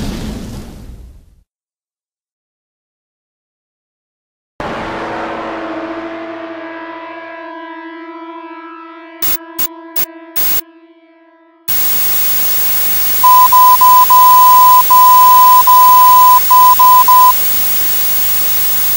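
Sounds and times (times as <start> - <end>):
high morse code beeps: 9.2 - 10.6, 11.7 - 18.9
radio static: 9.2 - 10.6, 11.7 - 18.9.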